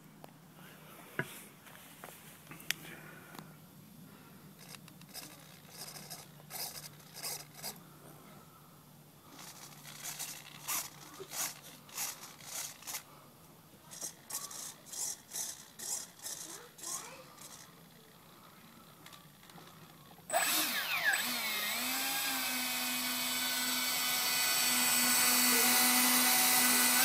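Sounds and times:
small servos buzzing: 4.6s - 7.9s, 9.2s - 13.1s, 13.8s - 27.0s.

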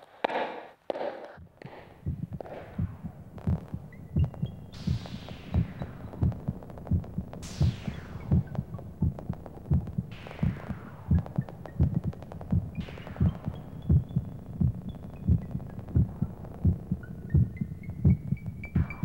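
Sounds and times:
electronic music with kick drum: 1.3s - 19.0s.

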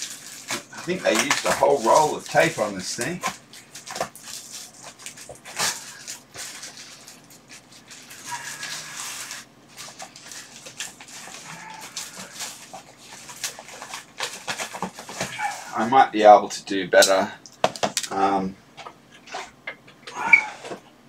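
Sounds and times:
plastic crinkling and tearing: 0.0s - 15.8s.

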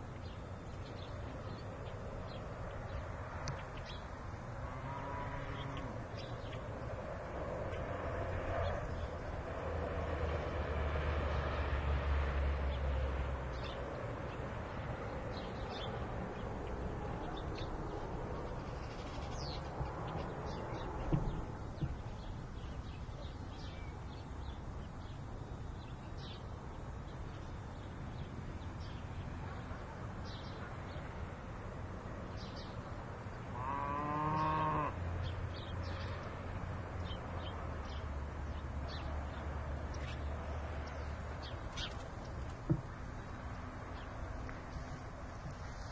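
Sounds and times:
long low animal call: 4.6s - 6.1s, 33.5s - 35.0s.

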